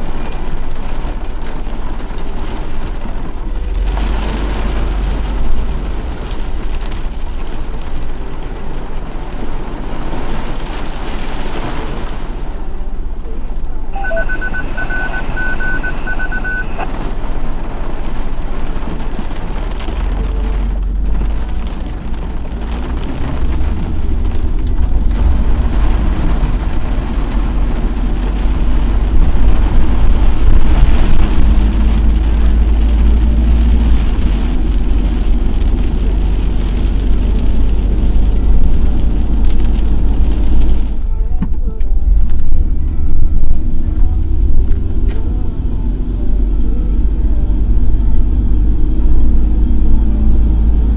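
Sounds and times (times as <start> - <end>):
road and engine rumble: 0.0 - 50.9
rapid high beeps: 14.0 - 16.9.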